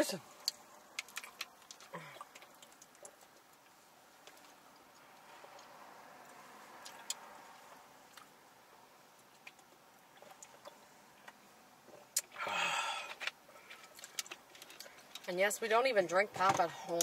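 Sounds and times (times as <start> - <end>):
people gulping drinks: 0.4 - 7.6.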